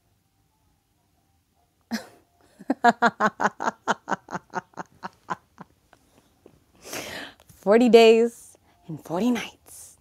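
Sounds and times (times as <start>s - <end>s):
person laughing: 1.9s - 5.7s
sharp breath: 6.8s - 7.4s.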